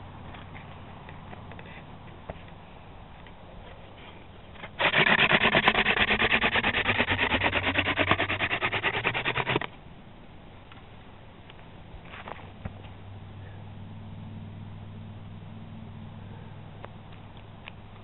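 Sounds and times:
hand drill grinding rub: 0:04.7 - 0:09.7.

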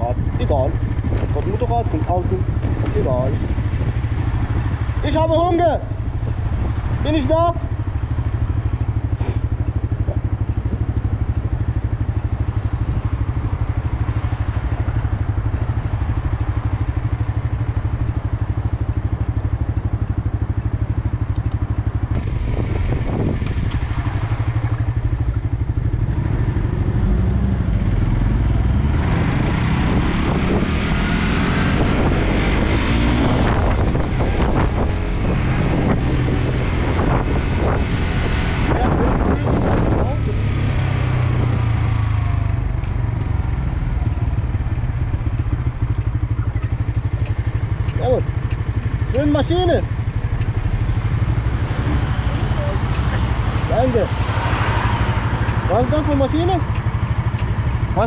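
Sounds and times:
wind noise on microphone: 0:00.0 - 0:05.0, 0:22.1 - 0:25.0, 0:25.8 - 0:43.1
motorcycle engine idling and revving: 0:00.0 - 0:58.0.

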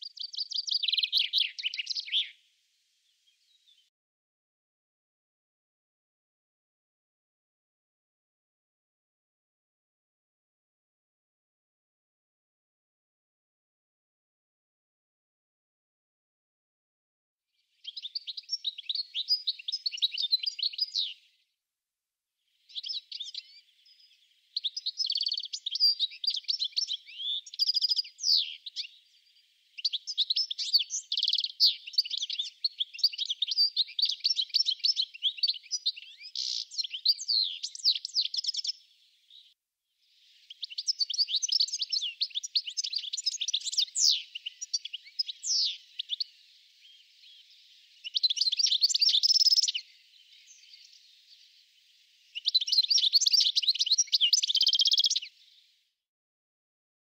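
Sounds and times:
goldfinch twittering song: 0:00.0 - 0:02.4, 0:17.8 - 0:21.4, 0:22.5 - 0:55.7.

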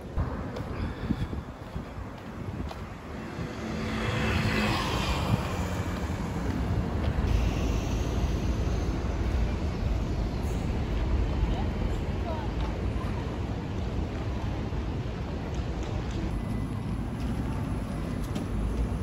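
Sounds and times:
low rumble of traffic: 0:00.0 - 0:19.0
vehicle passing: 0:02.5 - 0:09.3.

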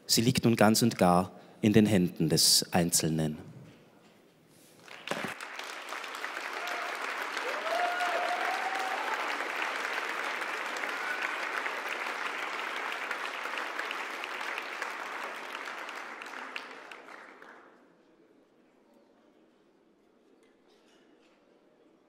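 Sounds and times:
audience applauding: 0:04.8 - 0:17.8.

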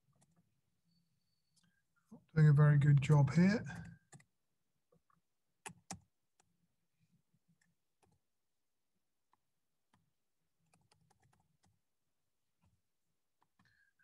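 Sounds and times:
keyboard and mouse clicks: 0:05.0 - 0:06.5, 0:10.7 - 0:11.8.

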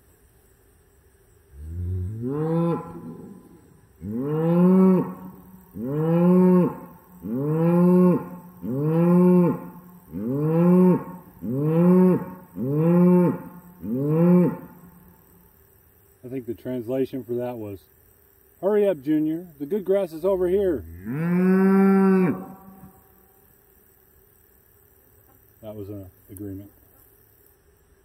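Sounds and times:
cow mooing: 0:01.6 - 0:15.0, 0:20.6 - 0:23.0.

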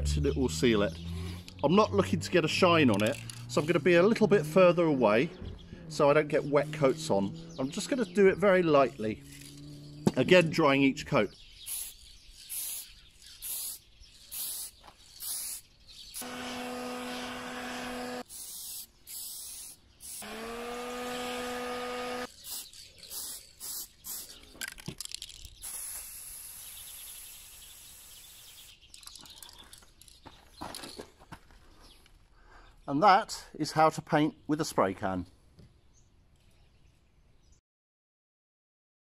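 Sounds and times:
aerosol can spraying: 0:11.7 - 0:16.6, 0:18.2 - 0:20.4, 0:22.2 - 0:24.4, 0:25.6 - 0:28.9
heat gun fan humming: 0:16.2 - 0:18.3, 0:20.1 - 0:22.3.

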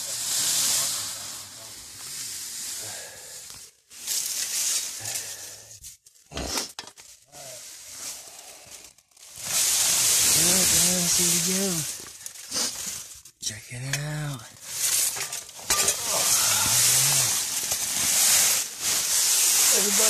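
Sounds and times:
dry leaves rustling and crunching: 0:03.9 - 0:06.2, 0:07.0 - 0:13.3, 0:14.0 - 0:20.0.

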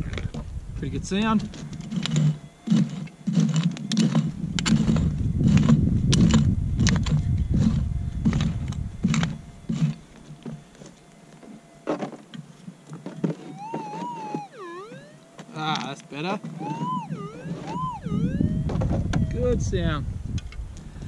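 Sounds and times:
metal detector warbling signal: 0:13.3 - 0:19.8
metal detector threshold tone: 0:13.4 - 0:19.8.

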